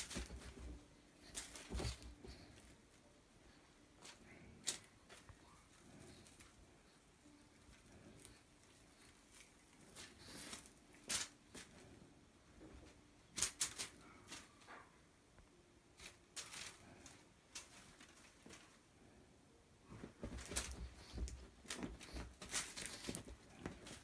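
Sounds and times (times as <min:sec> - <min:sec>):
cat scrabbling on fabric: 0:00.0 - 0:02.5, 0:19.9 - 0:24.0.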